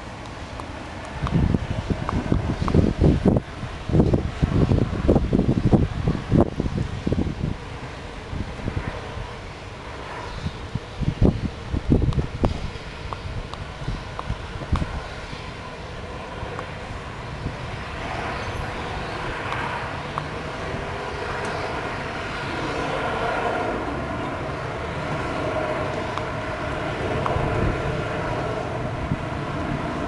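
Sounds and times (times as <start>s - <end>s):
distant jet engines rushing: 0.0s - 30.0s
wind rumbling on microphone: 0.0s - 30.0s.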